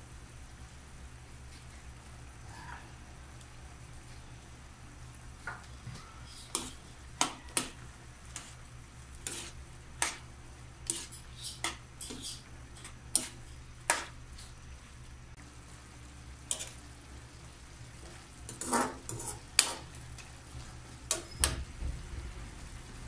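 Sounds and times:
sauce sizzling faintly: 0.0 - 23.0
spatula clinking and scraping wok: 6.3 - 8.6, 9.2 - 14.2, 16.5 - 16.8, 18.5 - 19.9.

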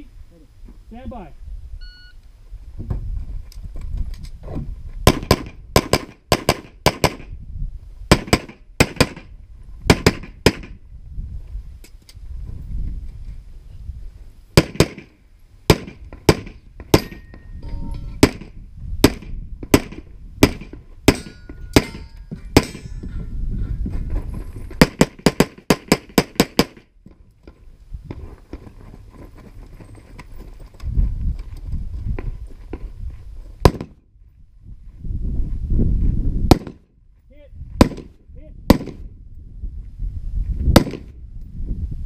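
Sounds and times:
gunshots: 5.1 - 7.3, 8.1 - 9.3, 14.6 - 15.1, 15.7 - 17.2, 18.2 - 22.0, 24.8 - 26.8, 33.6 - 34.0, 37.8 - 38.1, 38.7 - 39.0, 40.8 - 41.1.

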